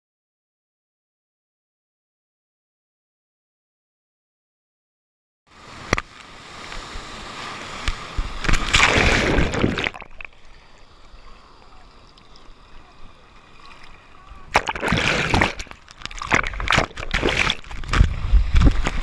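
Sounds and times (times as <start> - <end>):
water rushing against camera: 5.6 - 19.0
water lapping with small splashes: 5.7 - 19.0
whitewater breaking: 7.2 - 10.4, 13.6 - 19.0.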